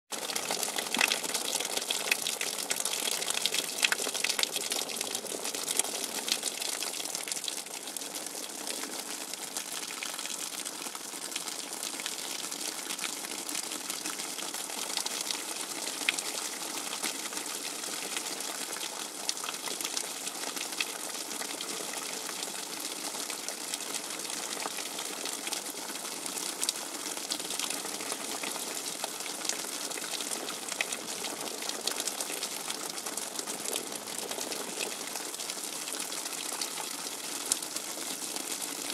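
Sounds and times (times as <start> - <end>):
rain water dripping: 0.2 - 10.2.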